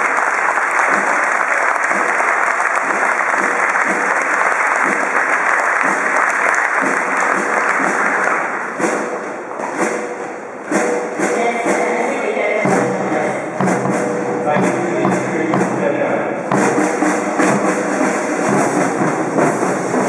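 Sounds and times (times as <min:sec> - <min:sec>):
audience applause: 0:00.0 - 0:09.1
sharp drum hits: 0:06.8 - 0:20.0
brass band playing: 0:12.6 - 0:20.0.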